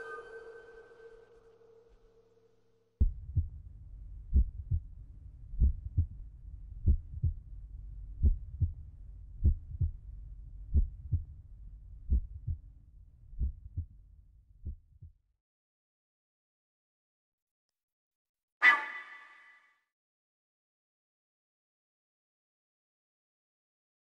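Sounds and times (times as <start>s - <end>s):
heartbeat thumps: 3.0s - 3.6s, 4.3s - 4.9s, 5.6s - 6.2s, 6.8s - 7.4s, 8.2s - 8.8s, 9.4s - 10.0s, 10.7s - 11.3s, 12.1s - 12.6s, 13.4s - 13.9s, 14.6s - 15.1s
steady low rumble: 3.0s - 15.1s.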